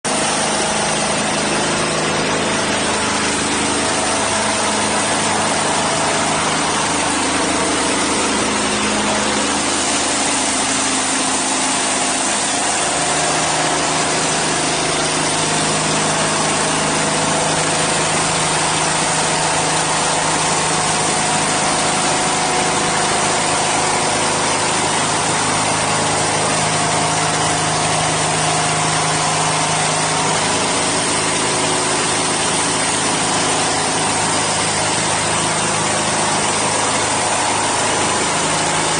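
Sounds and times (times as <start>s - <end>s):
band saw cutting log: 0.0s - 38.9s
diesel engine running: 0.0s - 38.9s.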